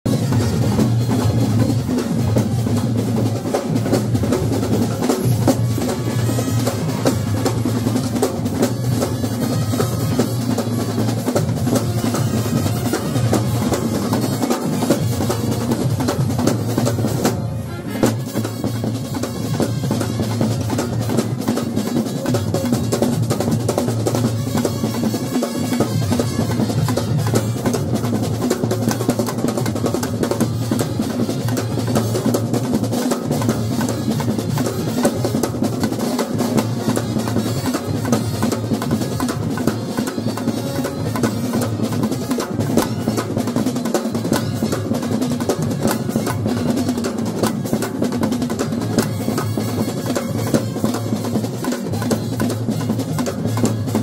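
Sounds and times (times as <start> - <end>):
bass and side drums beating: 0.1 - 54.0
brass horns playing: 5.4 - 7.8, 8.5 - 15.8, 17.5 - 20.7, 24.3 - 28.0, 49.0 - 54.0.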